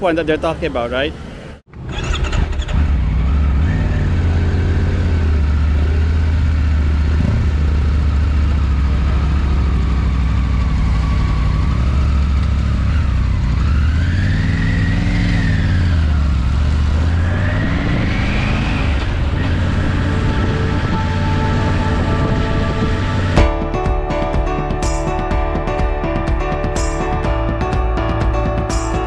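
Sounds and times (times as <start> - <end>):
motorcycle engine revving: 1.7 - 23.7.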